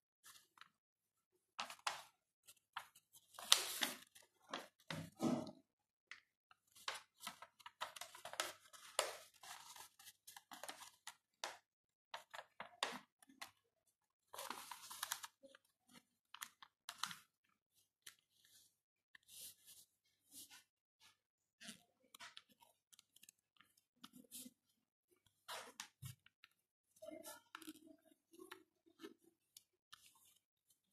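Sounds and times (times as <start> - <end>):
paper rustling and crinkling: 1.6 - 5.2, 6.6 - 11.6, 14.3 - 20.7.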